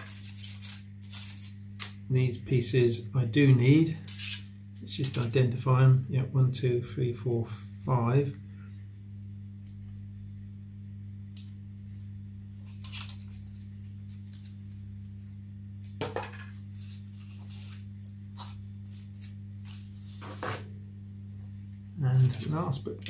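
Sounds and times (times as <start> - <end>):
foam parts rustling and scraping: 0.0 - 2.0, 16.6 - 20.7
low electrical hum: 0.0 - 23.0.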